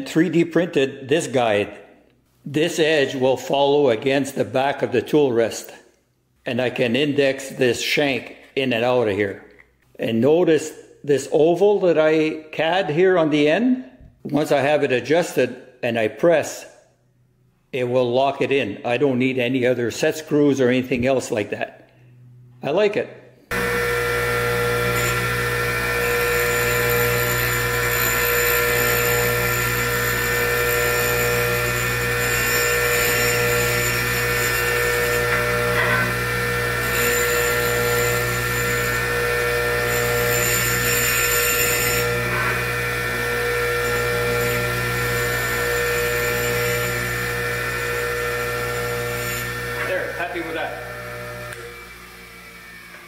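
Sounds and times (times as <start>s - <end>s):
bench grinder motor hum: 23.5s - 53.0s
diamond dresser on grinding wheel: 23.5s - 53.0s.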